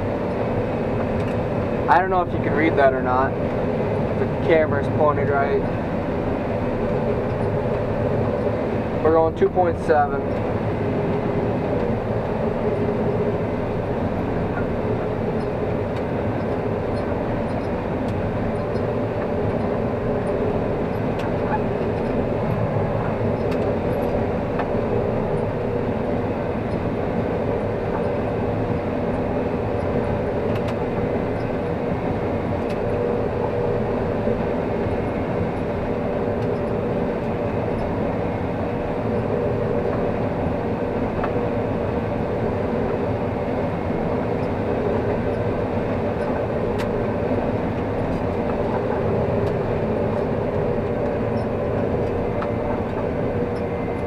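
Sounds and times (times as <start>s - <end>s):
combine harvester droning: 0.0s - 54.0s.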